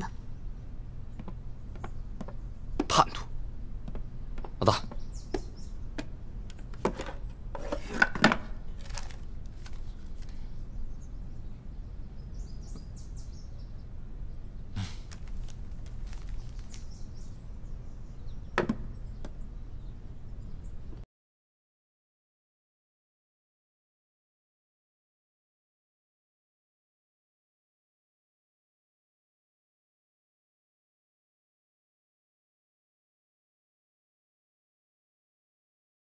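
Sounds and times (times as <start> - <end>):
low room hum: 0.0 - 21.0
wooden box knocks and clicks: 18.6 - 18.9.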